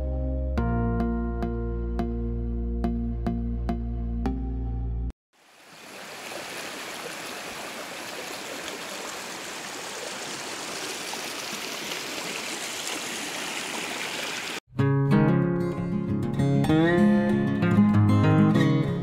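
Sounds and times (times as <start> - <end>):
creek flowing over stones: 5.4 - 14.6
acoustic guitar music: 14.7 - 19.0.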